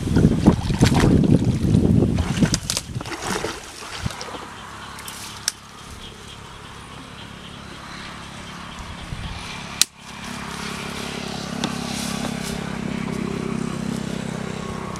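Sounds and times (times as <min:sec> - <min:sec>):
small engine running: 0:04.4 - 0:14.9.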